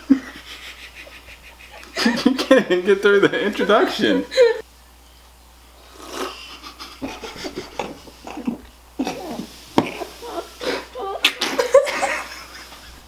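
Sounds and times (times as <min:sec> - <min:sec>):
children stifling laughter: 0:00.0 - 0:02.7, 0:06.4 - 0:13.0
man laughing: 0:00.0 - 0:04.6, 0:06.5 - 0:13.0.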